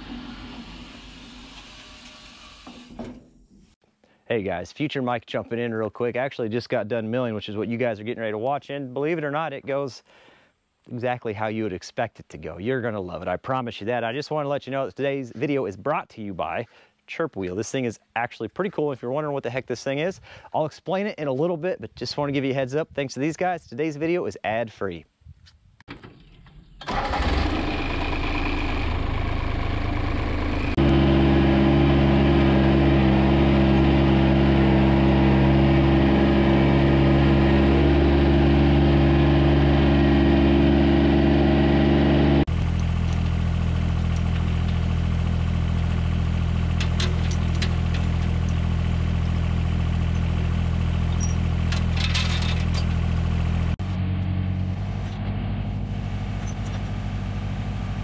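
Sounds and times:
tractor engine running: 25.9s - 58.0s.

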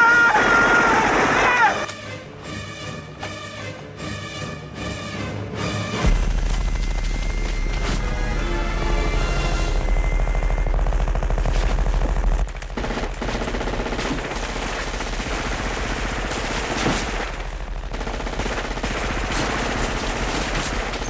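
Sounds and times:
machine-gun fire: 10.4s - 21.0s.

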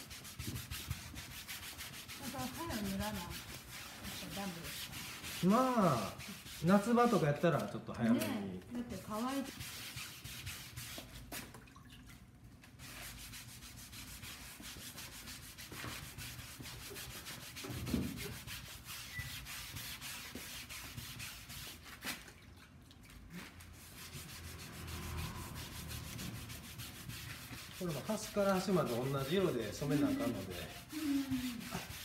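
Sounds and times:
brush bristles rubbing on fabric: 0.0s - 7.8s, 23.3s - 32.0s.

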